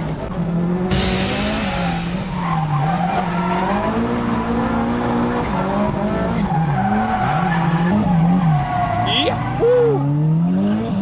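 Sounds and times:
car engine revving hard: 0:03.0 - 0:09.0, 0:10.0 - 0:11.0.

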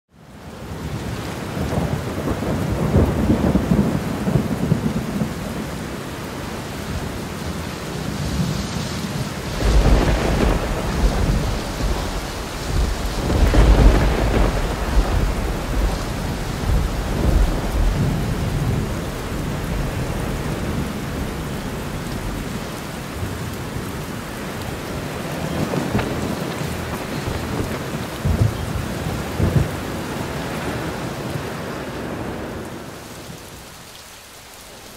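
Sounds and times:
heavy rain: 0:00.1 - 0:34.9
thunder rolling: 0:08.1 - 0:32.9.

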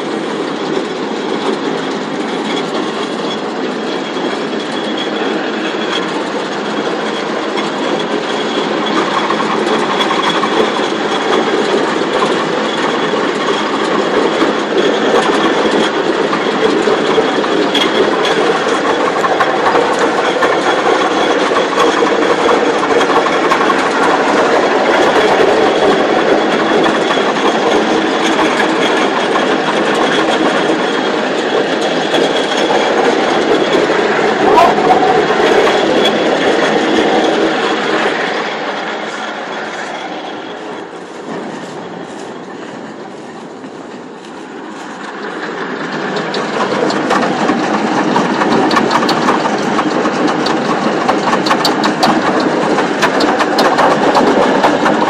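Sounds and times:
combine harvester clattering: 0:00.0 - 0:55.0.

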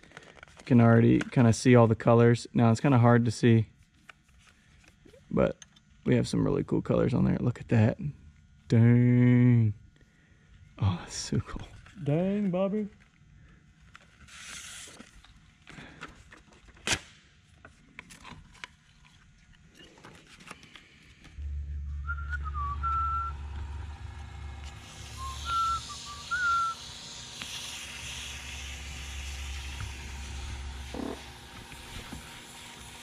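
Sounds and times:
person whistling: 0:21.4 - 0:27.2
wood lathe motor humming: 0:21.4 - 0:33.0
sandpaper hissing: 0:22.8 - 0:33.0.

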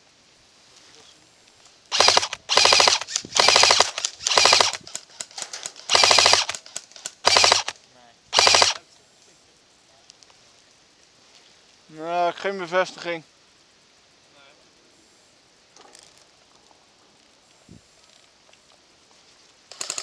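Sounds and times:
airsoft rifle full-auto bursts: 0:01.9 - 0:08.8, 0:19.7 - 0:20.0.

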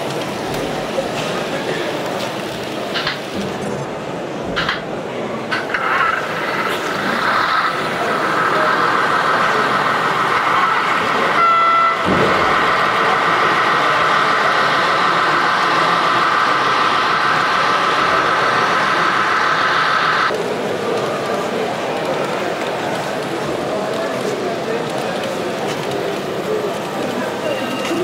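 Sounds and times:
model train motors whirring: 0:05.4 - 0:28.0
train horn toot: 0:11.3 - 0:12.1.

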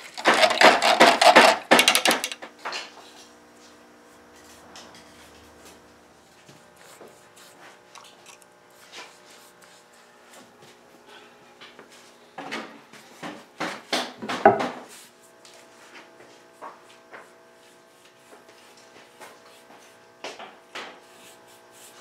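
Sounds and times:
wooden knocks and clatter: 0:00.2 - 0:02.4, 0:13.2 - 0:14.8
soft rubbing on wood: 0:03.1 - 0:11.1, 0:14.8 - 0:20.1, 0:20.8 - 0:22.0.

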